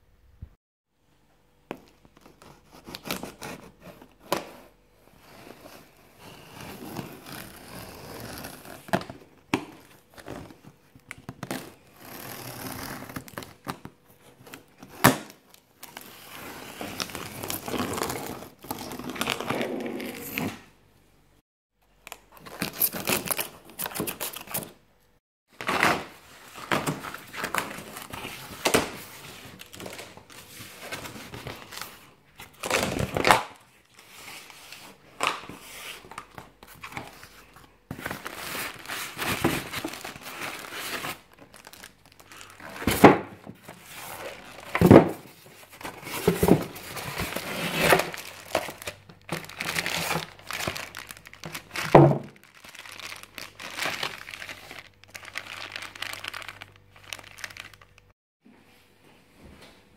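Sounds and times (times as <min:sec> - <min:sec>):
cardboard and styrofoam moved: 0:35.6 - 0:54.8
plastic wrap crinkling: 0:35.9 - 0:43.0, 0:43.6 - 0:58.2.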